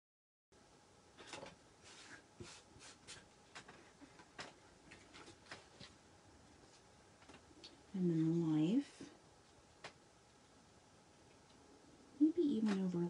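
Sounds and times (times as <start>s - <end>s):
plastic sheets rustling and crackling: 1.2s - 6.0s.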